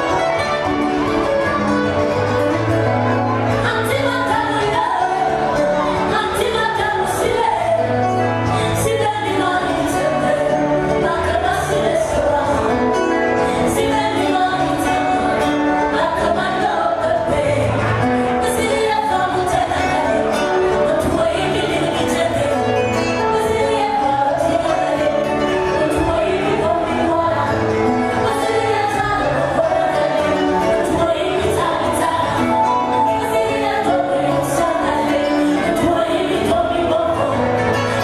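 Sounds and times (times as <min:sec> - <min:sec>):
woman singing into a microphone: 0:03.5 - 0:38.0.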